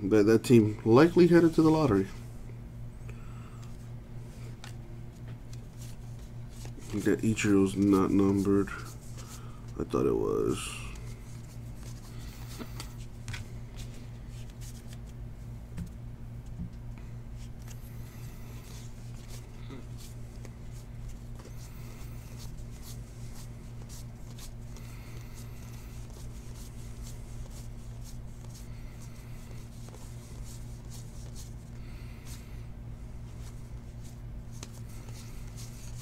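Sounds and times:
steady low hum: 0.0s - 36.0s
cards flicking and sliding: 11.0s - 15.2s.

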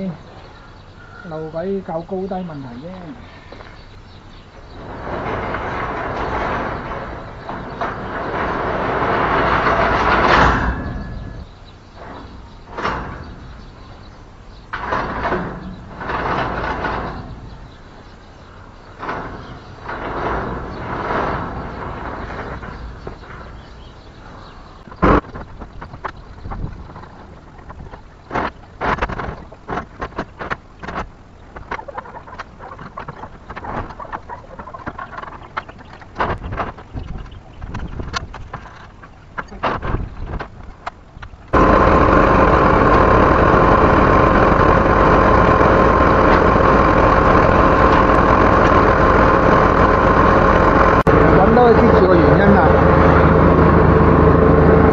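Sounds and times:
metal gate rolling scrape: 0.0s - 25.2s, 41.4s - 54.9s
sharp knocks and clanks: 0.0s - 54.9s
wind rumbling on microphone: 3.8s - 54.9s.

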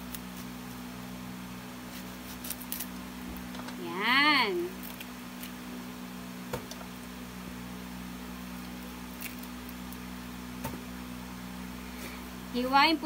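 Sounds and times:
onion skin being peeled: 0.0s - 3.8s, 4.6s - 7.3s, 8.1s - 11.0s
steady low hum: 0.0s - 13.0s.

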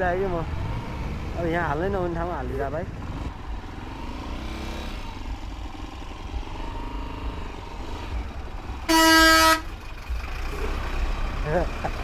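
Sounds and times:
vehicle horn blast: 8.9s - 9.7s.

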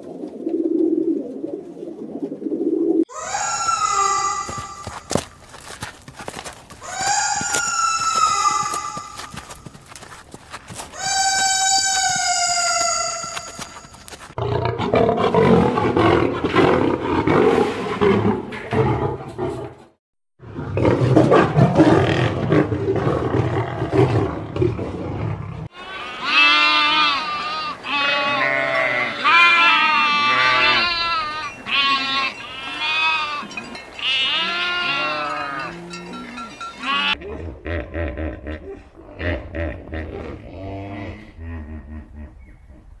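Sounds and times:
lion roars: 20.5s - 25.7s
sheep bleating: 25.8s - 36.2s, 36.8s - 37.2s.

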